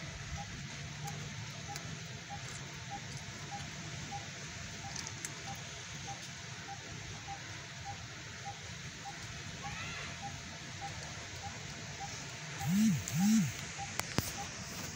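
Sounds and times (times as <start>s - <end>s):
steady hiss: 0.0s - 14.9s
faint high peep: 6.1s - 14.5s.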